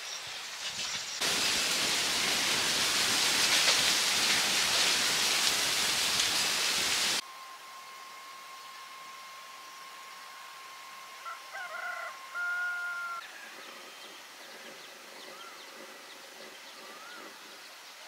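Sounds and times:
steady high tone: 7.2s - 13.2s
rooster crowing: 11.1s - 13.6s.

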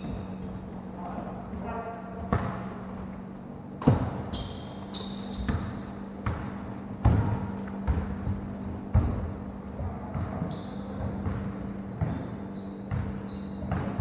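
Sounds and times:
sneaker squeaks: 0.0s - 14.0s
steady low hum: 0.0s - 14.0s
basketball bouncing on hardwood: 1.5s - 3.0s, 3.8s - 4.2s, 5.4s - 14.0s.

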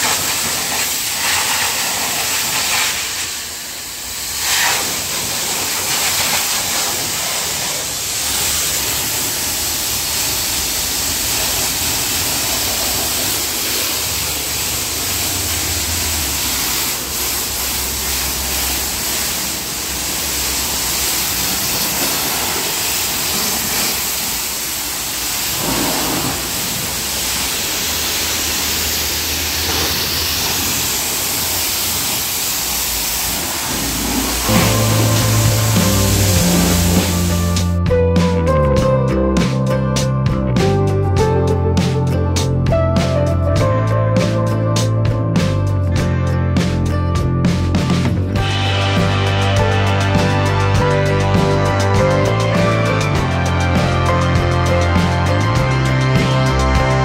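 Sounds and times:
pressure washer jet hissing: 0.0s - 37.8s.

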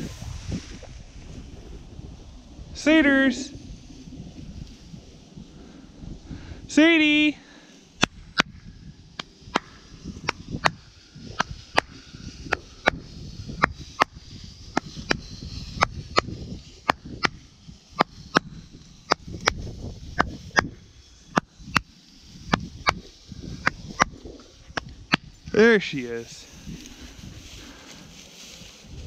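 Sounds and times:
low rumble: 0.0s - 6.8s.

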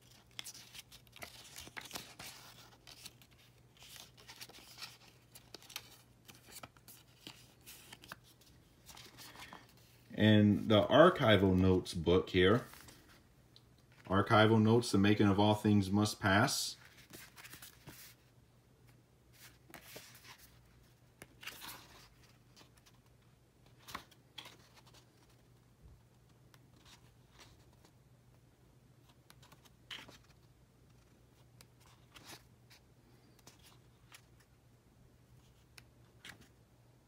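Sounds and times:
pages turning: 0.0s - 10.1s, 16.8s - 18.3s, 19.3s - 25.6s, 29.0s - 34.6s, 35.4s - 36.6s.

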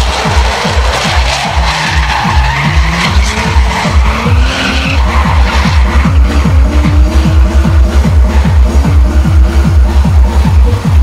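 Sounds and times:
phonk music with heavy bass: 0.0s - 11.0s.

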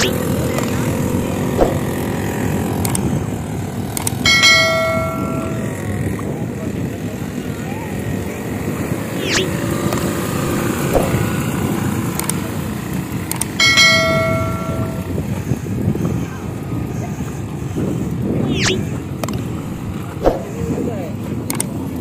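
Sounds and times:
quad bike engine: 0.0s - 22.0s
small bell ringing: 4.3s - 6.1s, 13.6s - 15.2s.

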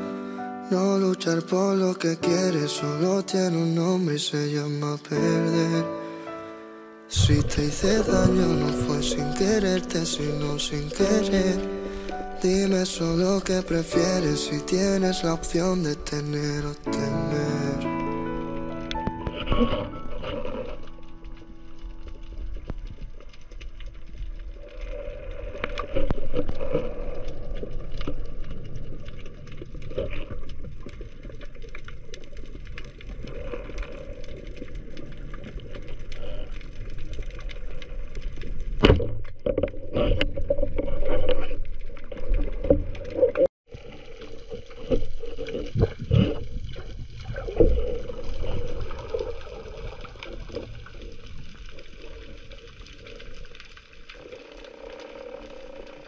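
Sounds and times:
water sloshing and gurgling: 7.2s - 16.9s, 17.8s - 56.0s.

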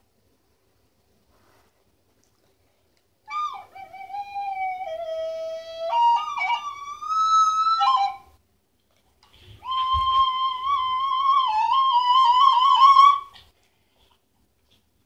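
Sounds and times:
plastic recorder notes: 3.3s - 8.3s, 9.6s - 13.4s.

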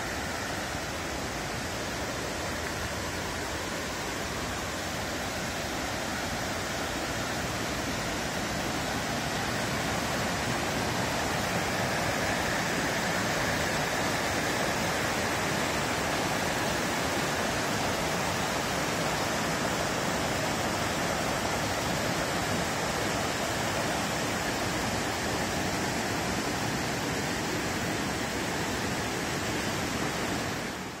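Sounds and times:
stream rushing over boulders: 0.0s - 31.0s.

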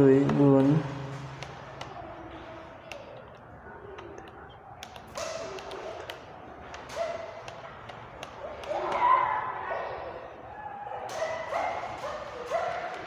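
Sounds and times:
calculator keys clicking: 2.8s - 8.8s.

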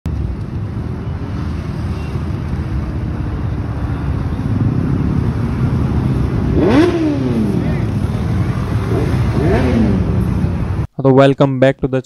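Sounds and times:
motorcycle engines rumbling: 0.1s - 10.9s.

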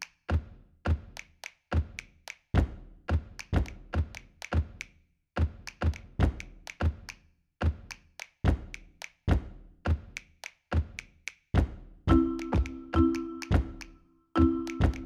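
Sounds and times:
kick drum thumps: 2.6s - 4.1s, 6.2s - 6.4s, 8.5s - 8.7s, 9.3s - 10.1s, 11.6s - 12.7s, 13.5s - 13.8s.

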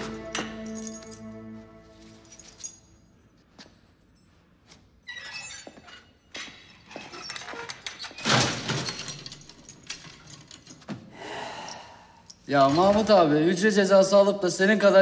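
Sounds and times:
keys jingling: 0.0s - 4.4s, 8.6s - 10.9s.

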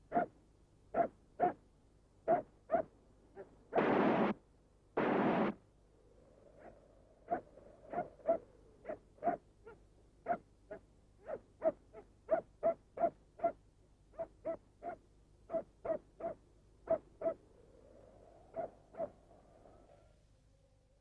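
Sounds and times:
dog barking: 0.1s - 0.3s, 0.9s - 1.6s, 2.3s - 3.5s, 6.6s - 17.4s, 18.5s - 19.2s.

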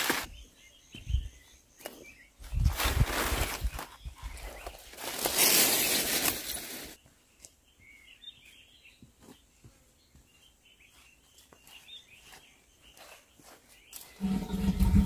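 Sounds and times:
leafy greens rustling: 2.7s - 7.0s
birds chirping faintly: 6.9s - 15.0s.

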